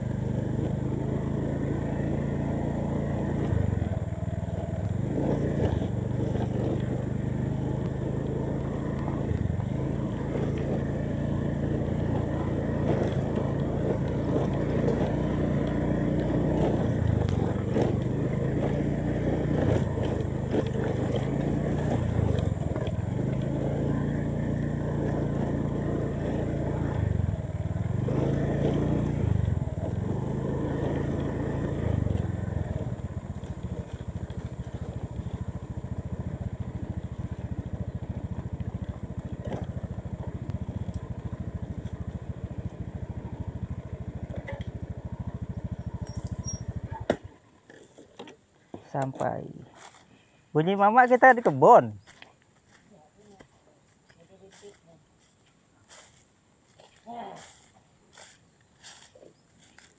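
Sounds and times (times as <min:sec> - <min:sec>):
motorcycle engine: 0:00.0 - 0:59.9
bike knocks and rattles: 0:45.6 - 0:49.4.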